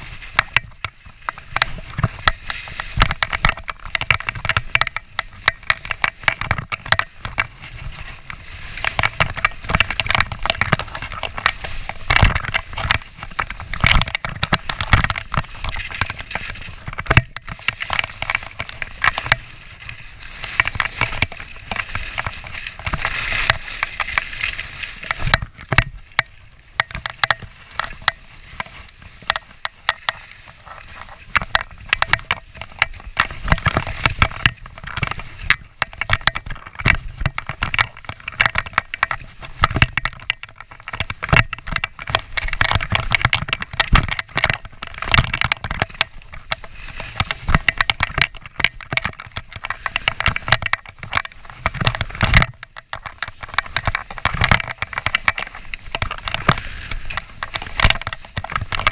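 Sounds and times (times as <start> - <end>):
skis scraping over snow: 0.0 - 38.0, 38.6 - 44.0, 45.8 - 48.0, 49.5 - 50.6, 52.8 - 58.9.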